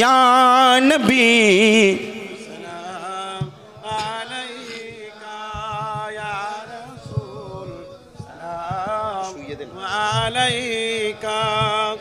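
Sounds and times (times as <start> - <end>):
men singing: 0.0 - 12.0.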